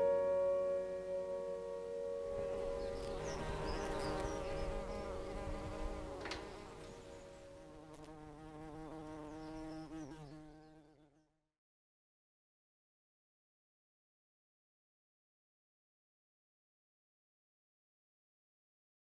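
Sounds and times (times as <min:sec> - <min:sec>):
bees buzzing: 0:00.0 - 0:11.0.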